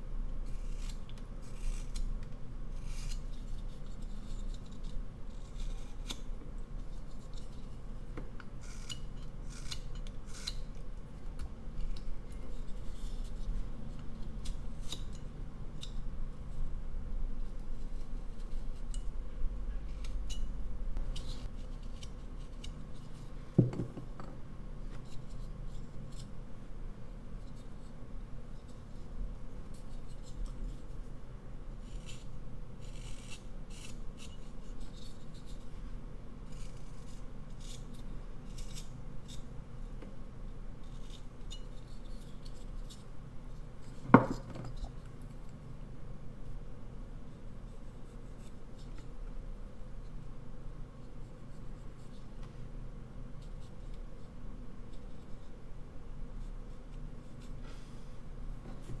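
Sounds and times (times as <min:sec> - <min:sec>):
knife scraping wood: 0:00.5 - 0:02.1, 0:02.7 - 0:07.8, 0:08.6 - 0:10.8, 0:11.7 - 0:16.0, 0:31.8 - 0:35.6, 0:36.5 - 0:39.5.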